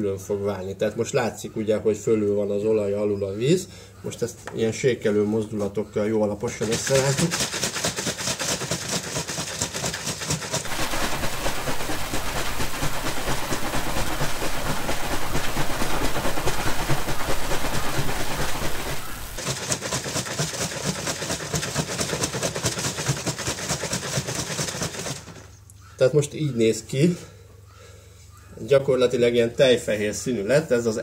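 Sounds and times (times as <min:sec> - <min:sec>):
liquid sloshing in shaken bottle: 0:06.5 - 0:25.5.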